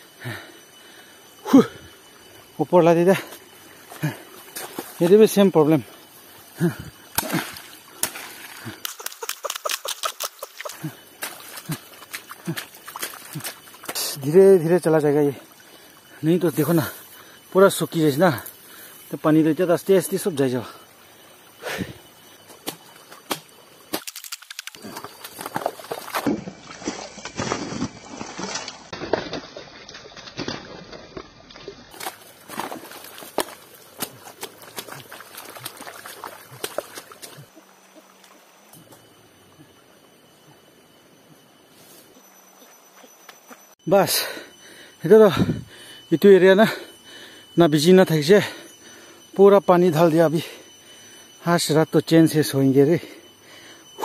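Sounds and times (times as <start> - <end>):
water sloshing and trickling: 3.3 - 17.2, 20.4 - 37.6
hoe chopping wet mud: 7.1 - 14.1, 22.6 - 31.2, 31.9 - 37.4
hoe chopping into wet mud: 7.2 - 10.2.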